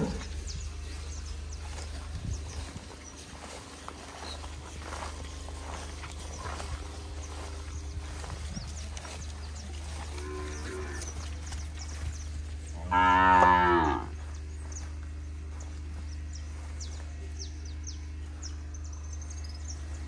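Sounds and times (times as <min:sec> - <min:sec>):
cow mooing: 0:09.9 - 0:11.2, 0:12.8 - 0:14.2.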